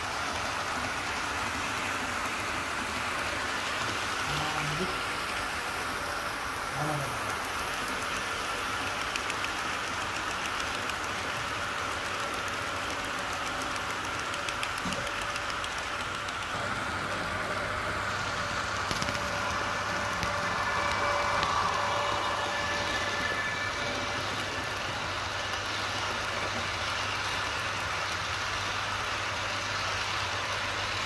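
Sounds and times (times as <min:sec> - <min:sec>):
model trains rolling hum: 0:00.0 - 0:31.0
wheels clicking over rail joints: 0:06.9 - 0:16.6.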